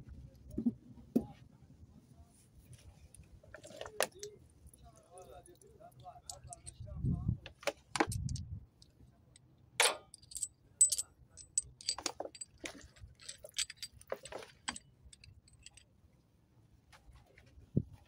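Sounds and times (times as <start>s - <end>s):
metal parts clinking in tray: 6.2s - 6.8s, 9.8s - 15.8s.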